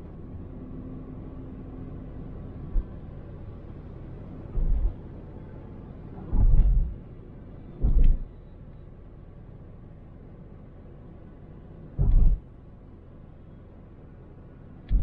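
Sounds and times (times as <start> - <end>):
low road rumble: 0.0 - 15.0
wheels thudding over bumps: 2.7 - 3.0, 4.5 - 5.0, 6.1 - 8.4, 12.0 - 12.5.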